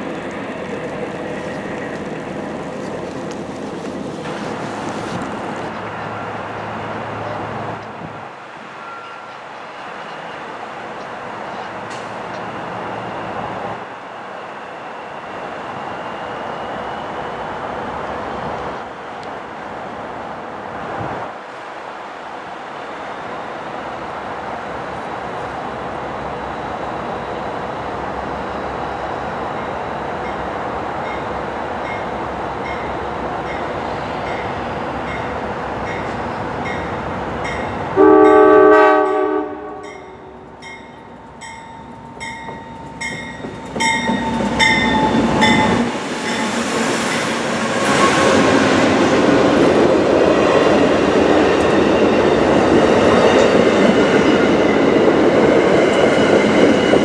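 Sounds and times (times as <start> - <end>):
wheels clacking on rails: 0.0 - 8.2, 39.1 - 57.0
train rumble: 0.0 - 13.9, 24.6 - 57.0
locomotive bell ringing: 35.9 - 46.6
train horn blast: 38.0 - 40.4.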